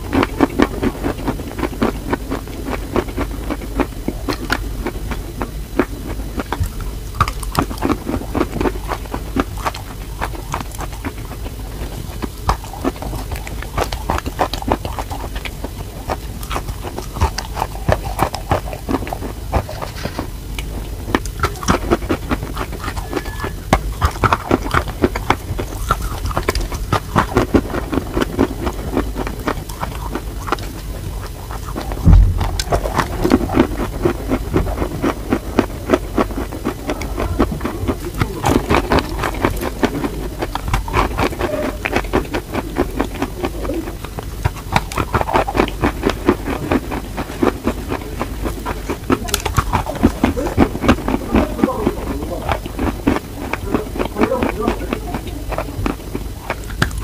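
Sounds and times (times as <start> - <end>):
chalk being chewed crunching: 0.0 - 57.0
heavy thump: 32.0 - 33.5.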